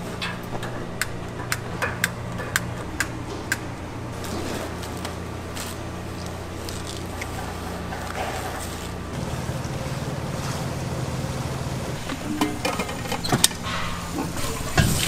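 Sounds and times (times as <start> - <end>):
dishes and utensils clinking: 12.1 - 15.0.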